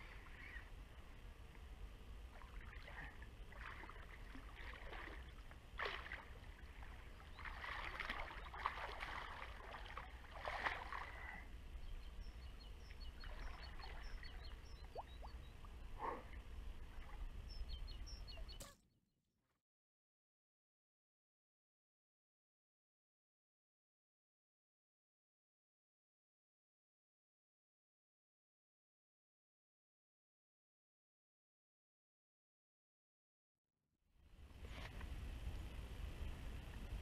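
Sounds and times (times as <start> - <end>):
fish splashing at water surface: 5.8 - 6.4.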